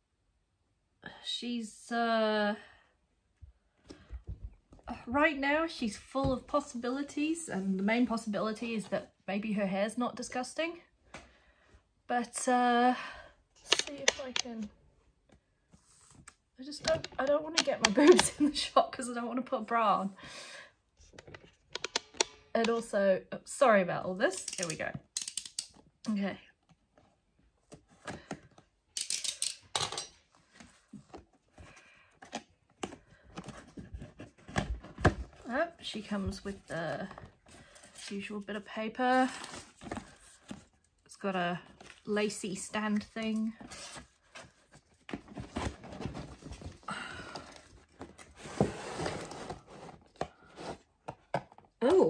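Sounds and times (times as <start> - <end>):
cardboard box rustling and scraping: 48.0 - 50.9.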